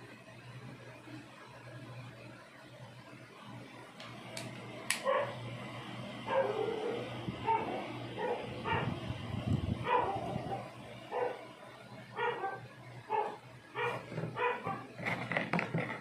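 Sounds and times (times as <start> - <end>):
dog yapping: 12.2 - 14.8.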